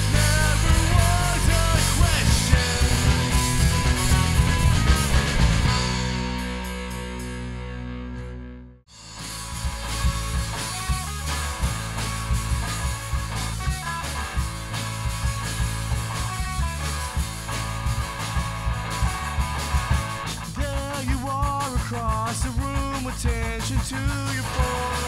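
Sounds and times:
person singing: 0.0s - 3.6s, 20.6s - 25.0s
drum kit: 0.0s - 8.0s, 8.9s - 25.0s
electric guitar: 0.0s - 25.0s.

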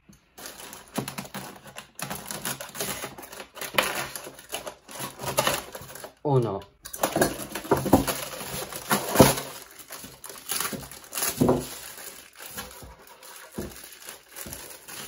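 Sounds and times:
plastic bag crinkling: 0.2s - 15.0s
packaging knocks: 6.9s - 15.0s.

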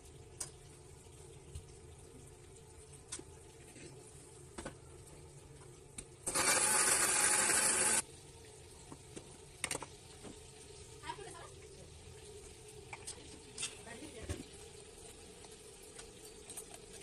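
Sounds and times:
electric mixer grinder running: 6.3s - 8.0s.

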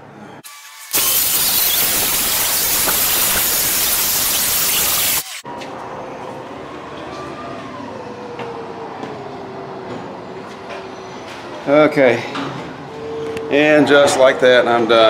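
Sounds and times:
circular saw cutting wood: 0.4s - 5.4s.

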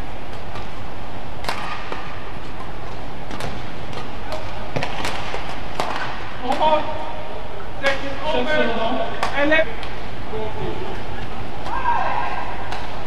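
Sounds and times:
hall background noise: 0.0s - 13.0s
rackets hitting shuttlecock: 1.4s - 6.9s, 12.6s - 13.0s.

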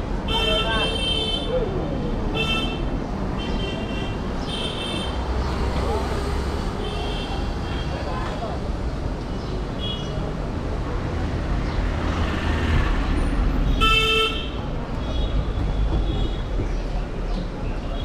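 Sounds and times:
street traffic rumble: 0.0s - 18.0s
vehicle horn honk: 13.8s - 14.5s.

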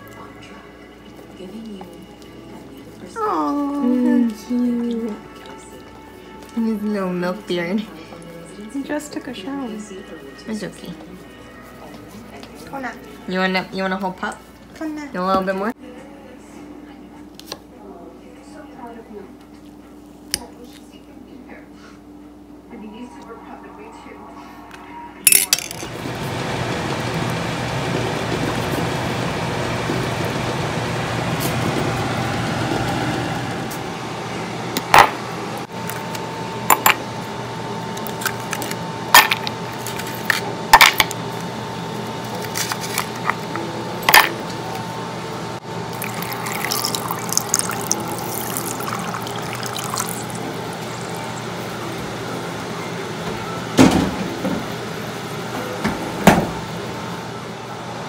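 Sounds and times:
ice cubes clinking against bowl: 25.3s - 25.9s
water running into a bowl: 45.9s - 52.1s.

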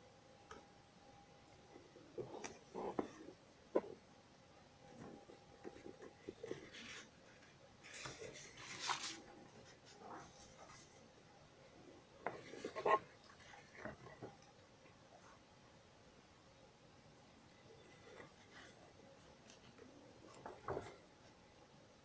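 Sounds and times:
rubbing and scraping handling noises: 1.5s - 4.0s, 4.8s - 11.2s, 11.8s - 14.5s, 17.3s - 21.4s.

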